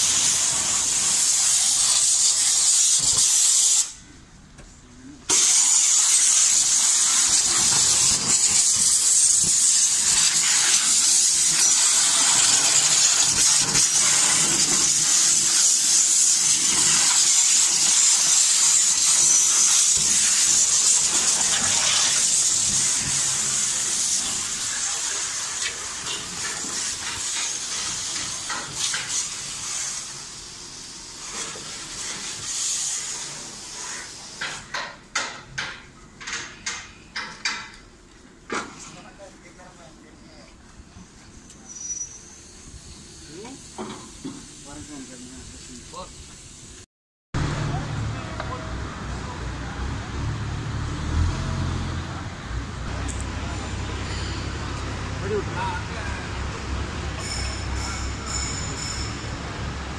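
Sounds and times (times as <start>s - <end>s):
high-pressure water spray hissing: 0.0s - 4.0s, 5.3s - 35.7s, 41.7s - 48.0s, 52.9s - 59.9s.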